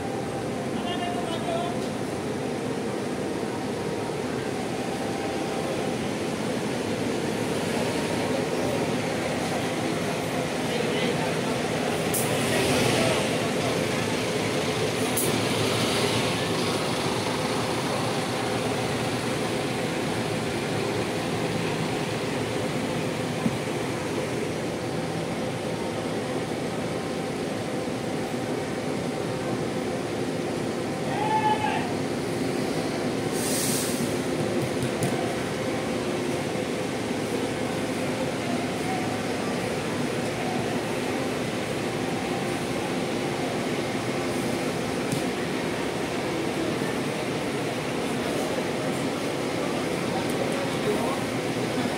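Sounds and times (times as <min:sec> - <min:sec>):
bus engine droning: 0:00.0 - 0:51.9
short hiss: 0:33.3 - 0:34.1.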